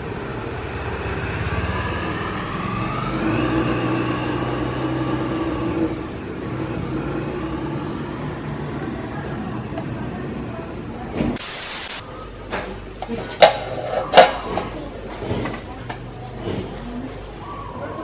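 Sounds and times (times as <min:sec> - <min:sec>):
engine revving: 0:00.6 - 0:09.1
steady hiss: 0:11.4 - 0:12.0.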